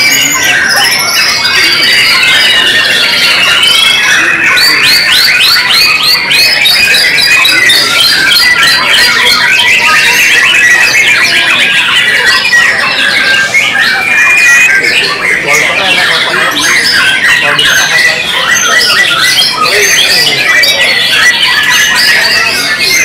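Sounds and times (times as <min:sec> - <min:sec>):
bird singing rapid whistled notes: 0:00.0 - 0:23.0
other birds singing: 0:00.0 - 0:23.0.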